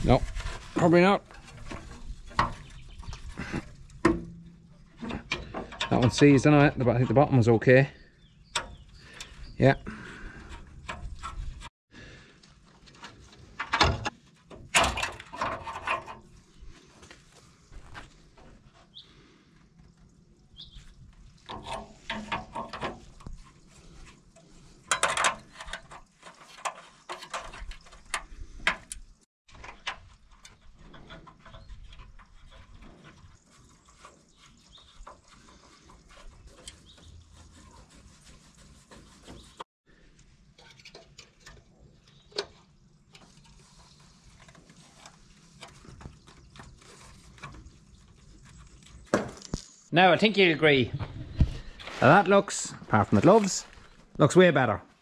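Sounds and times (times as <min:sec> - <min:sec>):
clicks and scrapes of hand work: 0:10.3 - 0:11.7, 0:21.2 - 0:49.8.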